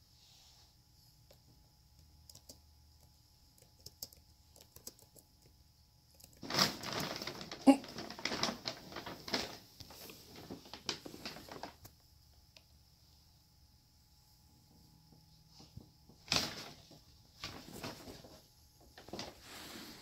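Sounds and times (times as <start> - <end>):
paper bag crinkling and rustling: 6.3 - 11.9, 16.2 - 20.0.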